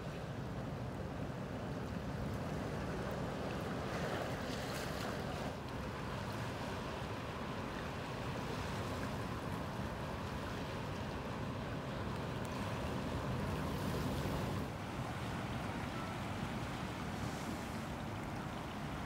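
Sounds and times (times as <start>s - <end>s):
surf washing among rocks: 0.4s - 19.0s.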